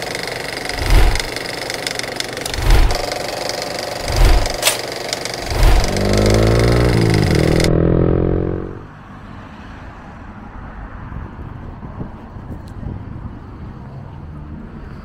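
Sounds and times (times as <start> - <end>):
vehicle engine running: 0.0 - 8.9
distant road traffic hum: 0.0 - 15.0.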